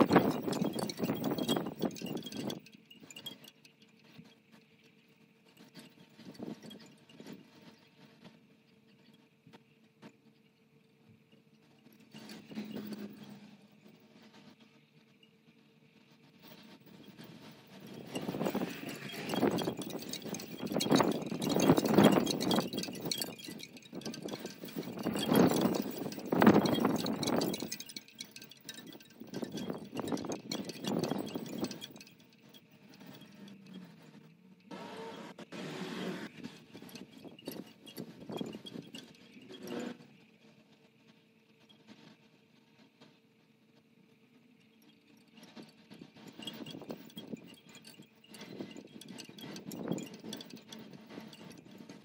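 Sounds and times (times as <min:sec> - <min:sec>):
wind chimes tinkling: 0:00.0 - 0:08.3, 0:11.9 - 0:14.3, 0:16.4 - 0:35.2, 0:36.2 - 0:40.4, 0:44.7 - 0:52.0.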